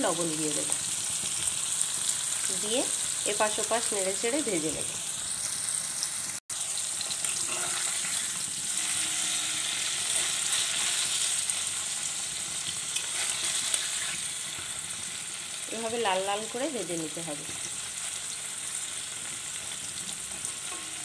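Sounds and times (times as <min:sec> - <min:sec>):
cheese frying in hot oil: 0:00.0 - 0:21.0
spatula turning food in pan: 0:06.5 - 0:21.0.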